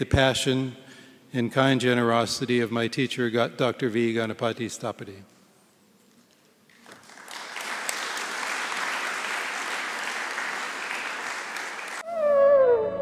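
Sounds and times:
audience applause: 6.8s - 12.0s.

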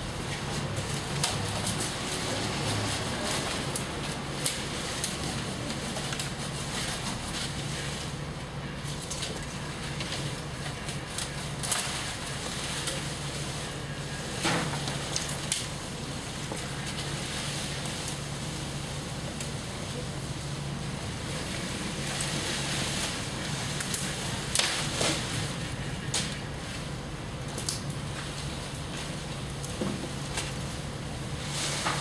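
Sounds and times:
leaves and twigs rustling: 0.0s - 32.0s
steady low hum: 0.0s - 32.0s
branches snapping: 0.4s - 7.8s, 8.8s - 18.3s, 21.4s - 26.5s, 27.4s - 30.7s.

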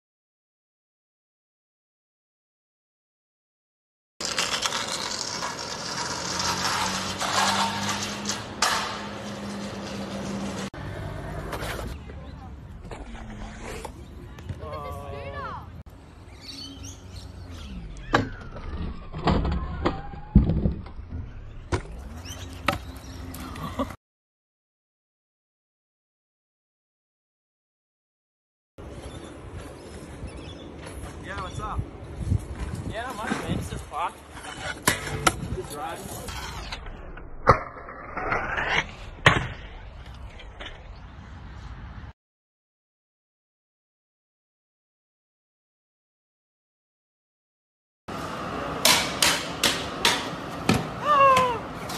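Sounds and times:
scooter deck clacks: 4.2s - 10.7s
short rising scrape: 4.2s - 12.0s, 36.2s - 39.3s
scooter wheels rolling on asphalt: 4.2s - 15.4s, 28.8s - 37.0s, 48.1s - 51.9s.

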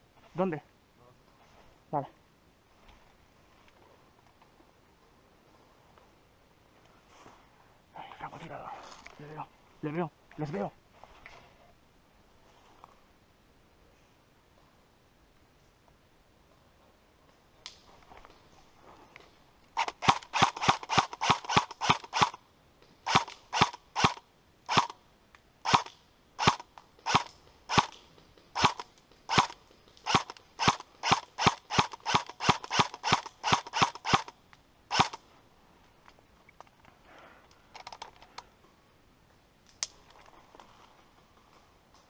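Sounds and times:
airsoft rifle shots snapping: 19.8s - 22.4s, 23.1s - 25.0s, 25.7s - 28.0s, 28.6s - 34.3s, 34.9s - 35.2s.

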